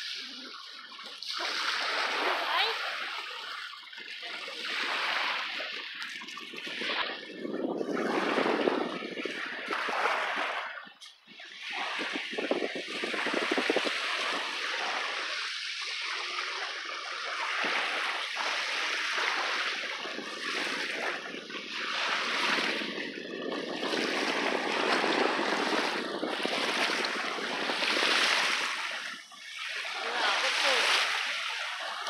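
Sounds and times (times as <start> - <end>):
small waves washing onto shore: 0.0 - 32.0
wind gusting on microphone: 4.8 - 15.3, 17.5 - 32.0.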